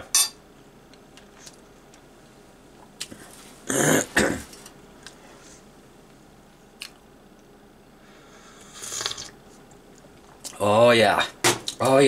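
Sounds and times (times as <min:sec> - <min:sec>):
person slurping coffee: 0:08.7 - 0:09.4.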